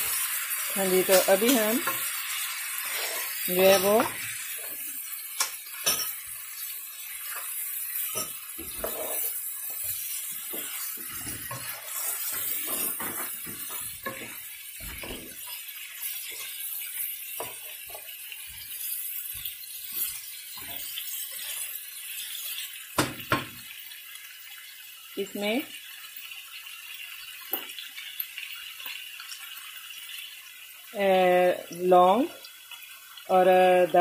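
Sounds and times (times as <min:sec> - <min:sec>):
meat sizzling in a pot: 0:00.0 - 0:34.0
spatula scraping a pot: 0:01.0 - 0:04.8, 0:05.8 - 0:22.5.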